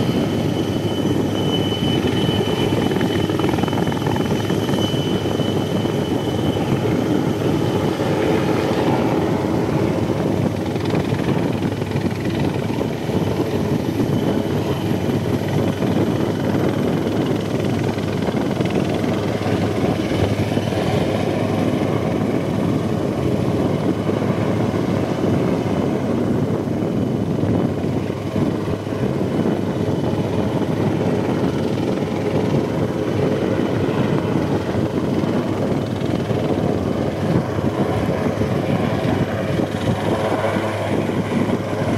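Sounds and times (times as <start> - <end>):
helicopter hovering: 0.0 - 41.9.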